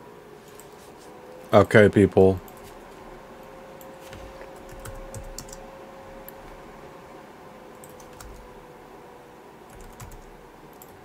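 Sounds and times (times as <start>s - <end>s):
faint steady hum: 0.0s - 11.0s
computer keyboard typing: 4.1s - 5.7s, 7.7s - 8.5s, 9.7s - 11.0s.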